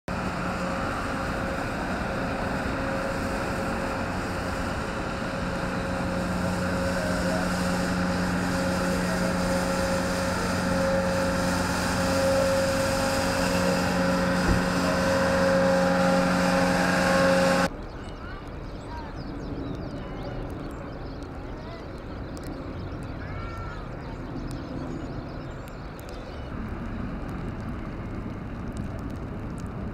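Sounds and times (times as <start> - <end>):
rotary brush sweeping snow: 0.1 - 17.7
tractor engine hum: 0.1 - 17.9, 24.1 - 29.9.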